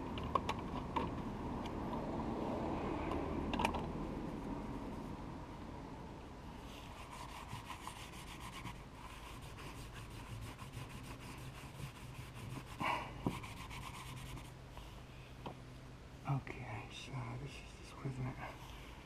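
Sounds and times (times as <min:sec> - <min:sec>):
rag wiping boat hull: 0:06.8 - 0:14.6.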